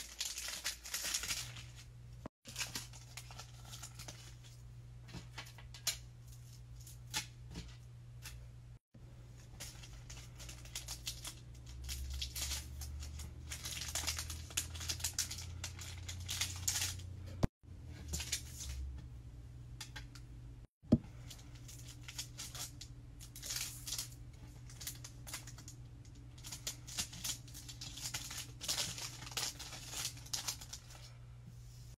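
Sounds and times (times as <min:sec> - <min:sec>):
plastic bags crinkling: 0:00.0 - 0:01.9, 0:02.5 - 0:05.9, 0:09.4 - 0:17.1, 0:21.4 - 0:31.1.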